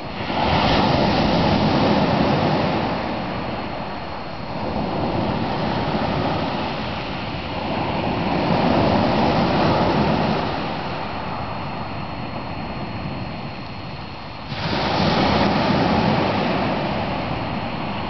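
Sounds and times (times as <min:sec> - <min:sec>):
waves washing up pebble beach: 0:14.5 - 0:17.6.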